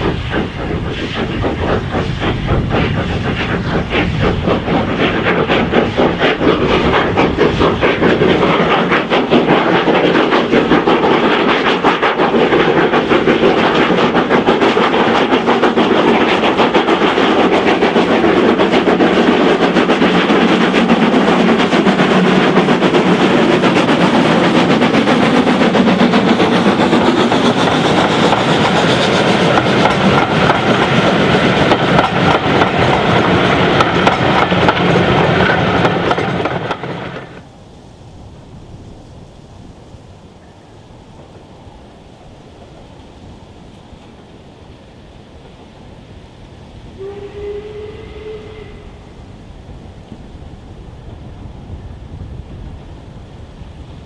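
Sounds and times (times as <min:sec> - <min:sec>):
steam locomotive exhaust beating: 0:00.0 - 0:37.5, 0:42.2 - 0:54.0
train coaches rumbling on rails: 0:00.0 - 0:54.0.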